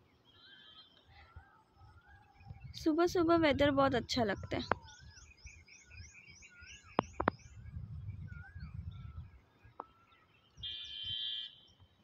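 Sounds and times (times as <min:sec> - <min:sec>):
whistled bird notes: 0:00.2 - 0:03.0, 0:04.1 - 0:11.9
birds calling: 0:04.0 - 0:12.0.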